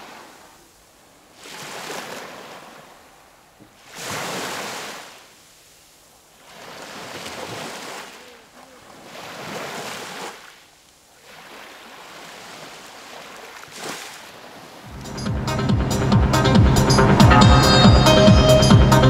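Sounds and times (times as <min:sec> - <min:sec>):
sea waves washing in: 0:00.0 - 0:19.0.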